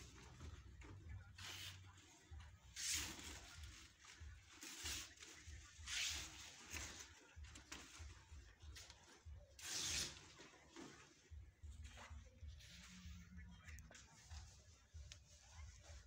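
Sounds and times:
balloons and ribbon rustling: 0.0s - 16.0s.

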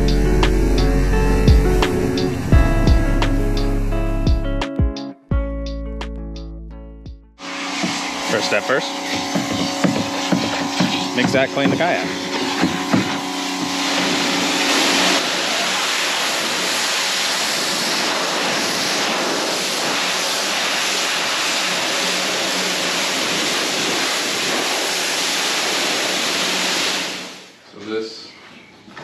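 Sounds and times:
pressure washer jet hissing: 7.4s - 27.5s.

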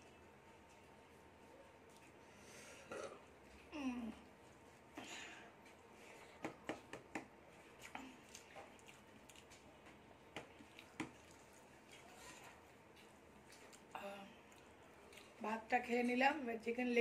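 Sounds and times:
faint chewing smacks: 1.8s - 15.4s
fingers mixing rice on plate: 5.6s - 13.9s.

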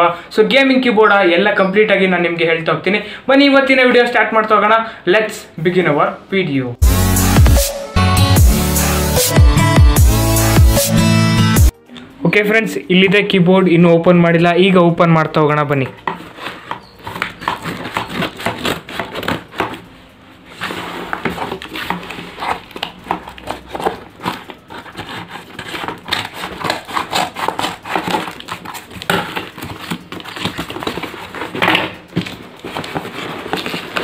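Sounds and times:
cardboard and tape ripping: 16.2s - 34.0s.

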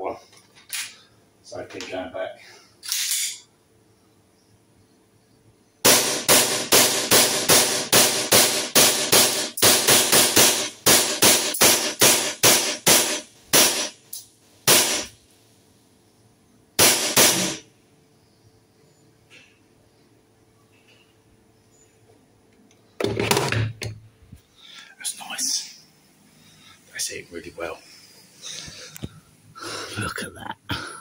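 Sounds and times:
airsoft pistol shots: 5.8s - 14.0s, 14.7s - 15.1s, 16.8s - 17.6s.

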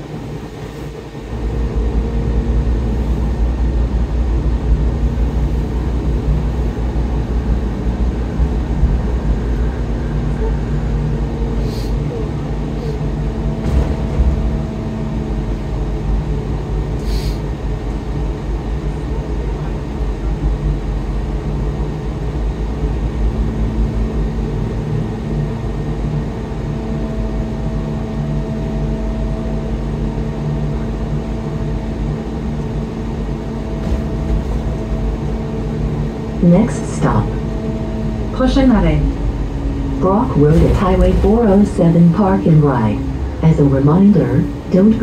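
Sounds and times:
bus engine hum: 0.0s - 45.0s
tyres rumbling on road: 0.0s - 45.0s.

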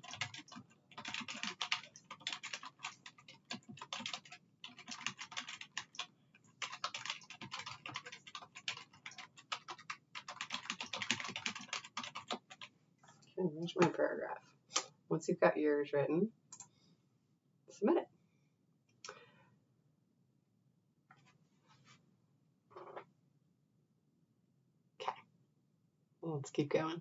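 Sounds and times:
fast typing on keyboard: 0.0s - 12.7s.

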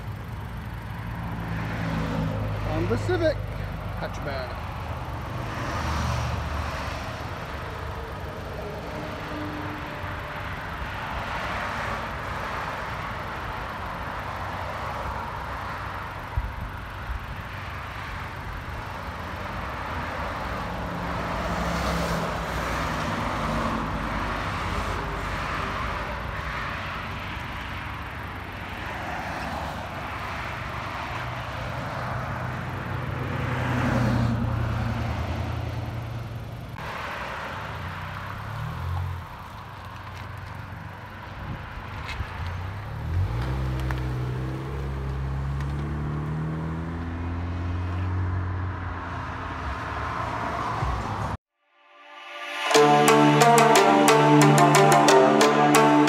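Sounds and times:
car engine idling: 0.0s - 5.6s, 6.4s - 21.5s
road traffic passing: 0.0s - 56.0s.

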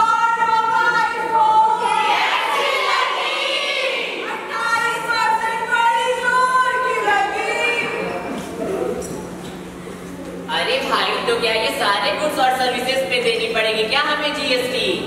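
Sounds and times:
women shouting: 0.0s - 7.8s.

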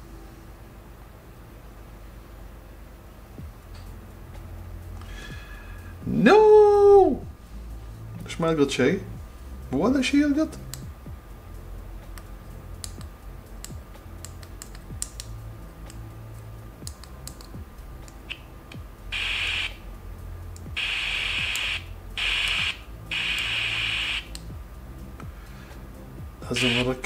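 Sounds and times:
low hum: 0.0s - 26.8s
radio static hiss: 19.1s - 19.8s, 20.7s - 24.3s, 26.4s - 27.0s.

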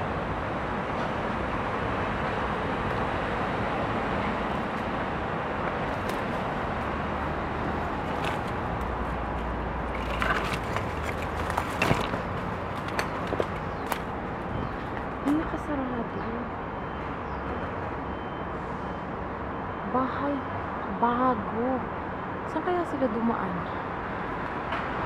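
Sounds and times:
city hum: 0.0s - 25.0s
footsteps crunching on debris: 7.9s - 14.1s.

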